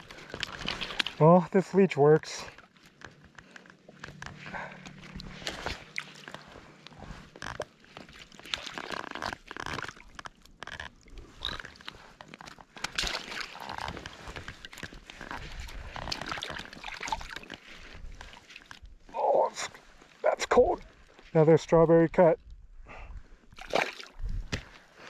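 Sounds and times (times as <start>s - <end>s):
small water splashes: 0.0s - 1.5s, 2.3s - 18.8s, 23.5s - 24.8s.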